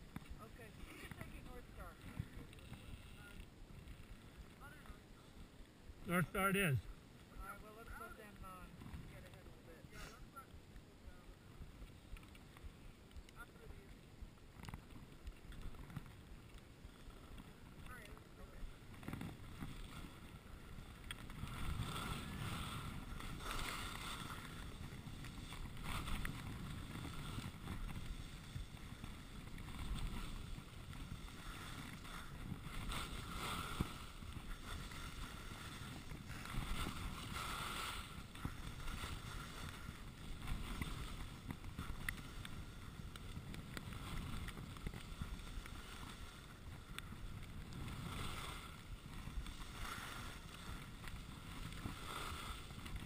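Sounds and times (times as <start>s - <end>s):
wind on microphone: 14.8s - 53.0s
skis hissing over snow: 16.8s - 53.0s.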